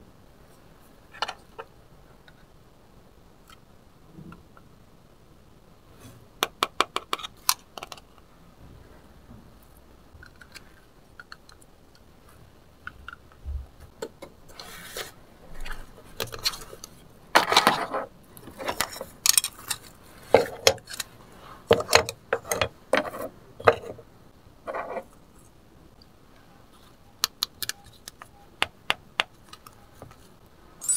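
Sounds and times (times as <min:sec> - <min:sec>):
plastic toys clicking and clattering: 0:16.1 - 0:21.1.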